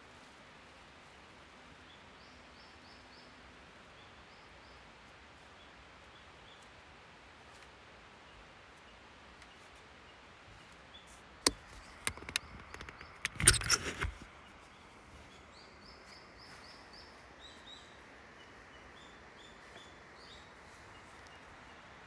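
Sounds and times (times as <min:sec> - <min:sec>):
faint outdoor hiss: 0:00.0 - 0:22.0
camera handling clicks: 0:11.5 - 0:14.2
knocking and rustling: 0:11.5 - 0:14.3.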